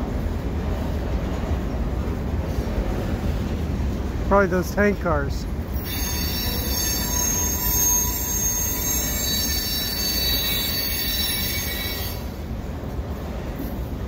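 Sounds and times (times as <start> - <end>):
freight train rumble: 0.0 - 14.0
steel wheels squealing on rails: 5.7 - 13.9.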